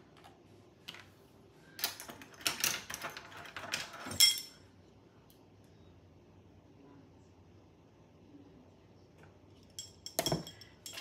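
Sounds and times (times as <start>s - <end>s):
metal spoons clicking and rattling: 1.8s - 4.6s, 9.6s - 11.0s
ringing metal clink: 4.1s - 4.6s, 9.7s - 11.0s.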